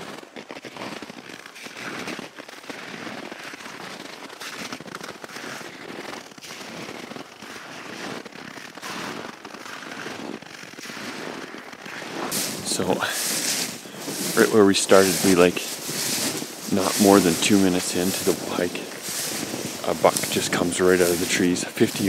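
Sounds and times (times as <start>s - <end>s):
boots crunching on frozen snow: 0.0s - 22.0s
clothing brushing: 11.9s - 22.0s.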